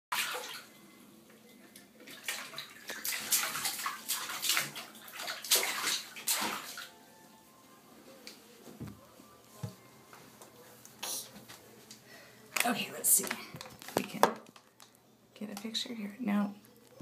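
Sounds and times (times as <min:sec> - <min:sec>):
baby splashing bathwater: 0:00.1 - 0:00.8, 0:01.8 - 0:06.9.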